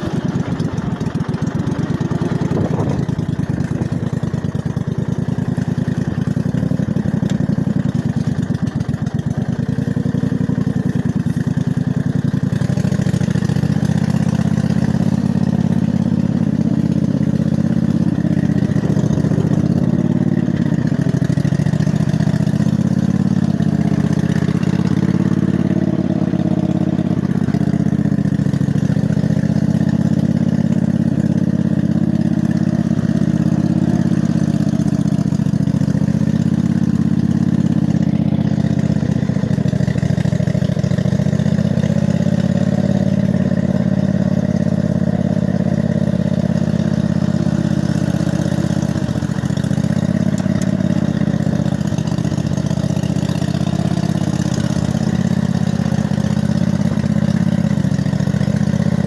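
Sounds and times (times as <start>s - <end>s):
lawn tractor engine running: 0.0s - 59.0s.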